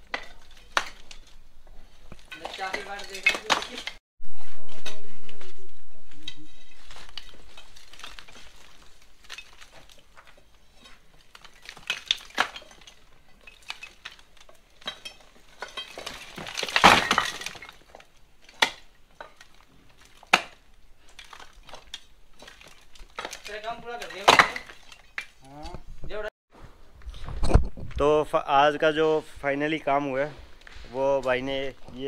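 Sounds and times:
bricks clinking and knocking: 2.0 - 4.0, 7.0 - 25.4
falling bricks clattering: 2.0 - 4.0, 6.7 - 25.4.

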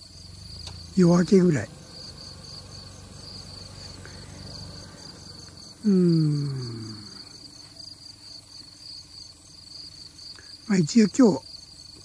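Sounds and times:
insects trilling: 0.0 - 12.0
man's drawn-out vocal sound: 5.8 - 7.3.

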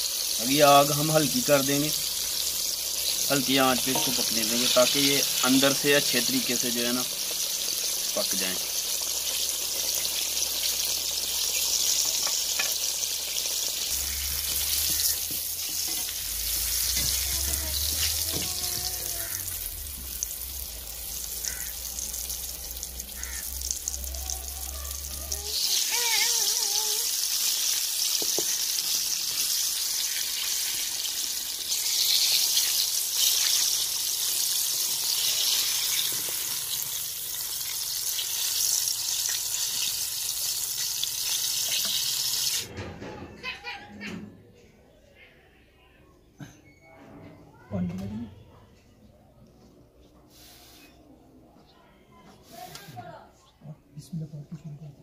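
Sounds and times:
hot oil sizzling: 0.0 - 42.7, 50.3 - 51.0.

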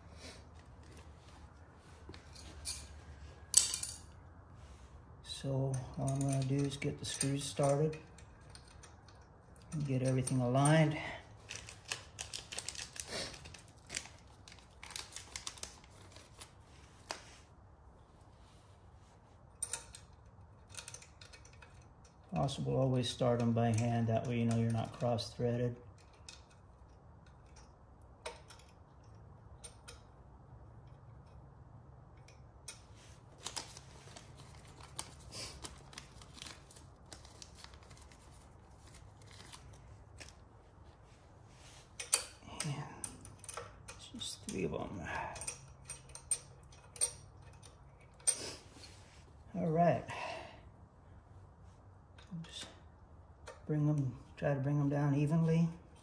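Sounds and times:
small metal clicks: 5.7 - 10.8, 11.4 - 16.0, 19.6 - 22.6, 23.4 - 31.5, 42.0 - 44.6, 45.4 - 48.4.

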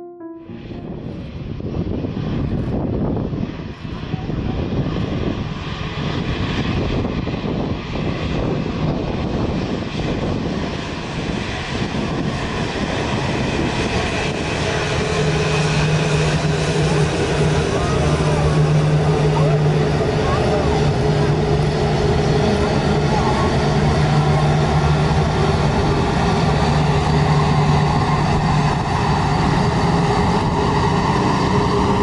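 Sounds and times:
low hum: 0.0 - 2.1
jet engine roar with whine: 0.6 - 32.0.

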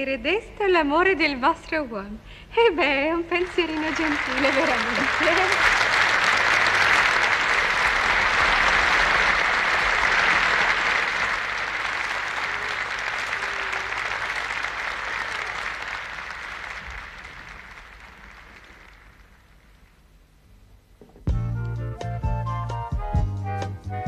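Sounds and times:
studio audience applauding: 3.3 - 20.0.

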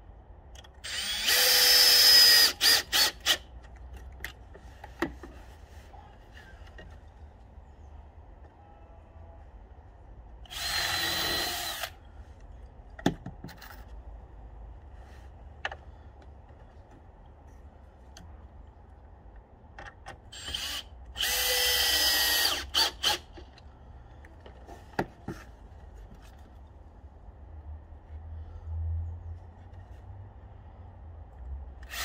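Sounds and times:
cordless drill whining: 0.8 - 3.4, 10.5 - 12.0, 20.4 - 23.3
knocks and clicks of handling wood: 3.6 - 5.5, 12.4 - 14.0, 19.3 - 20.2, 23.4 - 26.6.

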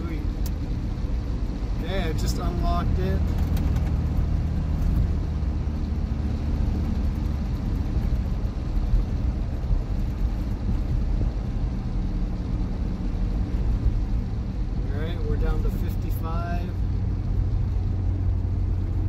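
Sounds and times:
diesel engine drone: 0.0 - 19.0
road noise: 0.0 - 19.0.

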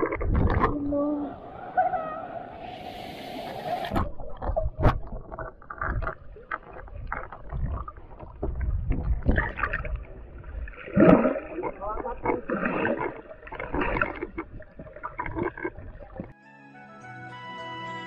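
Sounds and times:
underwater knocks and clicks: 0.0 - 0.8, 3.9 - 16.4
underwater rumble and sloshing: 0.0 - 16.4.

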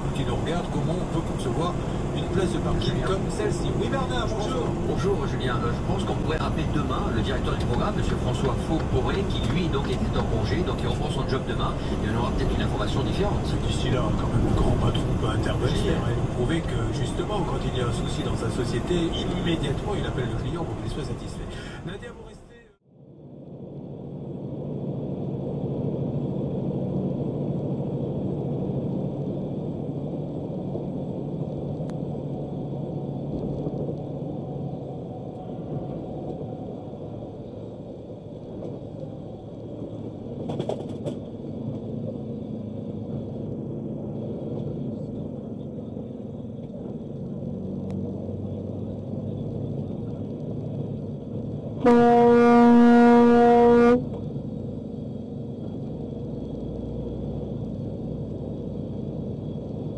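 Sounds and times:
truck engine and road noise: 0.0 - 59.9
truck horn blast: 51.8 - 54.1.

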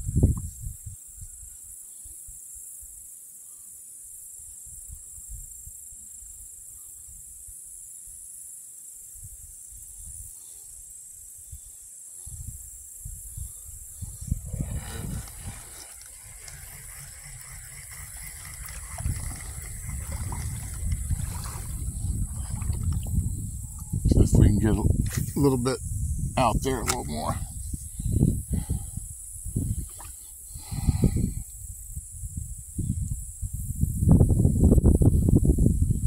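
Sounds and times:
wind buffeting microphone: 0.0 - 1.3, 11.5 - 36.0.

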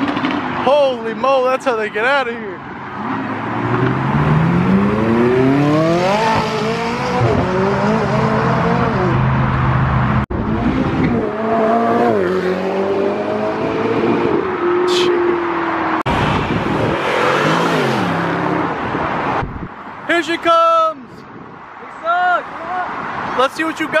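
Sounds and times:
car engine accelerating hard: 3.0 - 19.0
supercar engine revving: 3.0 - 19.0.

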